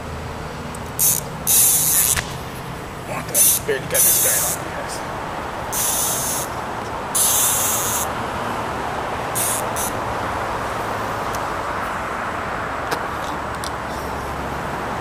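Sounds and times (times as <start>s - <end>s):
steady rushing noise: 0.0s - 15.0s
short high hiss bursts: 1.0s - 4.8s, 5.7s - 6.6s, 7.2s - 8.1s, 9.3s - 10.0s.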